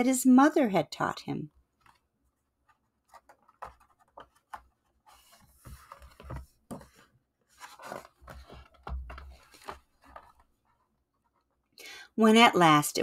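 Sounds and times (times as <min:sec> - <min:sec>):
page turning rustle: 0:01.7 - 0:10.8.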